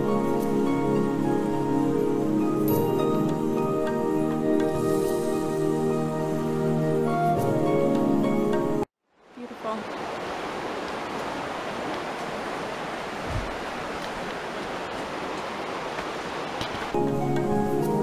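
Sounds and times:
background music: 0:00.0 - 0:08.9, 0:17.0 - 0:18.0.

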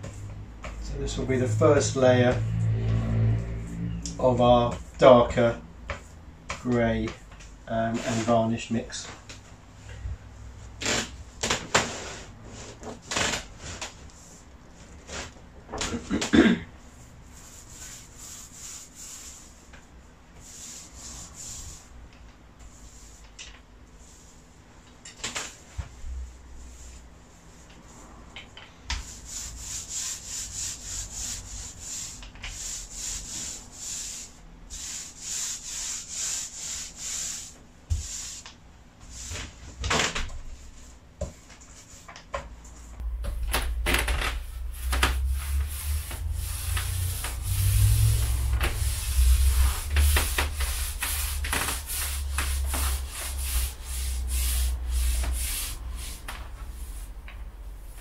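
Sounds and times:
paint roller rubbing on board: 0:00.0 - 0:09.0, 0:10.7 - 0:15.4, 0:16.8 - 0:22.0, 0:22.6 - 0:24.7, 0:25.5 - 0:39.7, 0:42.9 - 0:58.0
low rumble: 0:42.7 - 0:58.0.

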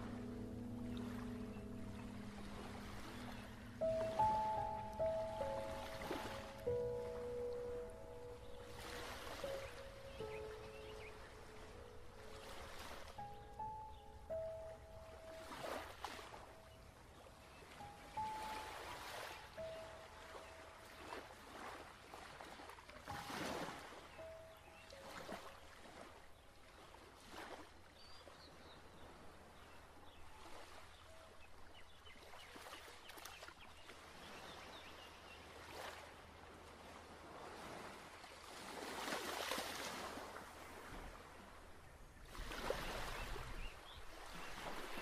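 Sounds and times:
faint flowing water: 0:00.0 - 0:45.0
faint bird chirps: 0:00.8 - 0:21.3.

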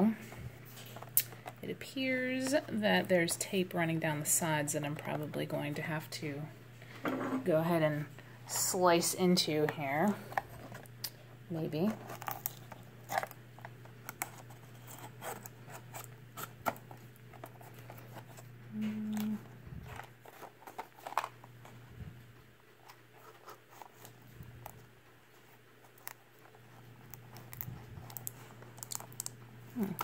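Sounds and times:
blister package crinkling: 0:11.9 - 0:18.5, 0:22.8 - 0:30.0.

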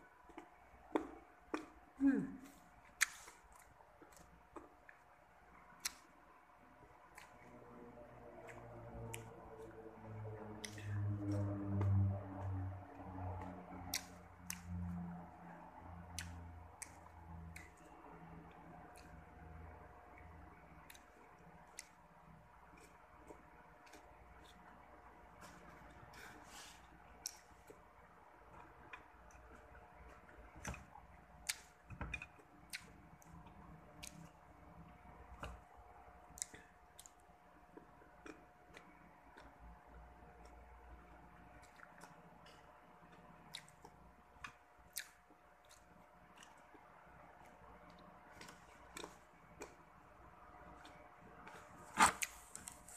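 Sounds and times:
faint steady hum: 0:00.0 - 0:52.9
low hum: 0:06.3 - 0:31.5
crunchy mango chewing: 0:07.0 - 0:52.9.

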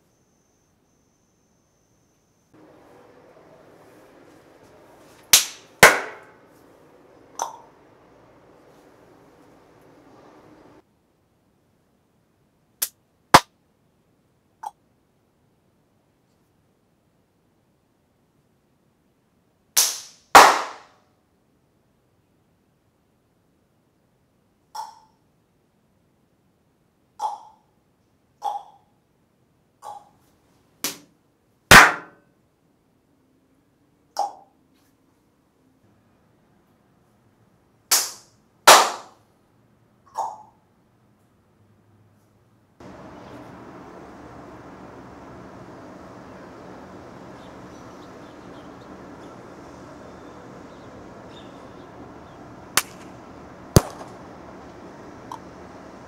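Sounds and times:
background hum: 0:00.0 - 0:10.8, 0:42.1 - 0:56.0
faint high chirps: 0:00.0 - 0:10.8, 0:42.8 - 0:56.0
sharp bangs: 0:02.6 - 0:10.8, 0:19.8 - 0:20.9, 0:37.9 - 0:39.1, 0:42.8 - 0:56.0
hand claps echoing in a room: 0:05.4 - 0:06.3, 0:19.8 - 0:20.9, 0:37.9 - 0:39.1.

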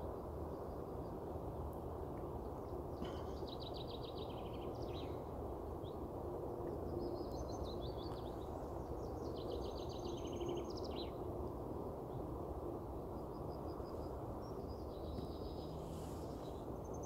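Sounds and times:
songbird singing: 0:03.0 - 0:05.2, 0:06.8 - 0:11.2, 0:13.2 - 0:17.0.

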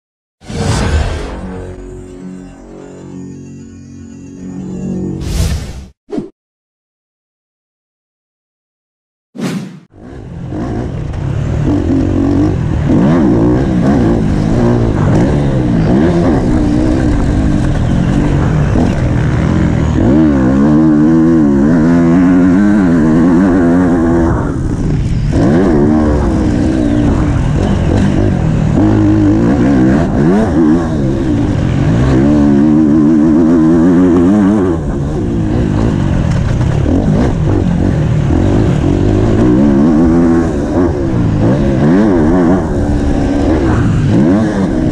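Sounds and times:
motocross engine revving: 0:10.0 - 0:44.9.

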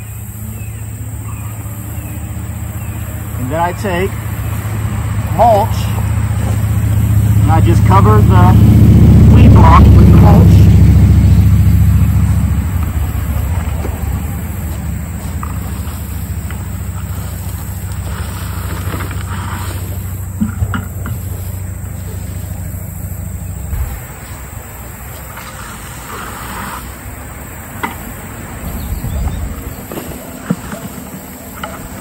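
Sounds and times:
low rumble: 0:04.1 - 0:24.9.

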